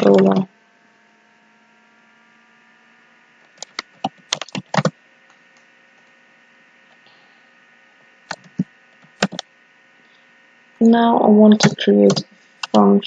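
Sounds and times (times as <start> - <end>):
keyboard typing: 0.0 - 0.4, 3.6 - 5.0, 8.3 - 9.5.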